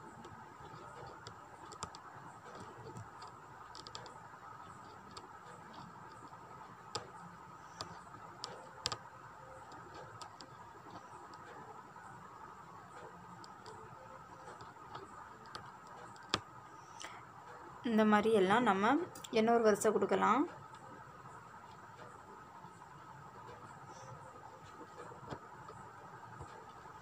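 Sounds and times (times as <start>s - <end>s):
needle clicking through fabric: 0.0s - 11.8s, 12.9s - 17.1s.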